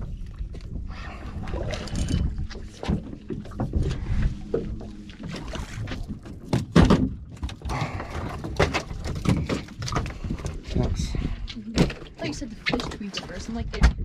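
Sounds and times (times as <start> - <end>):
wind and water against hull: 0.0 - 14.0
knocks on boat: 6.5 - 7.3.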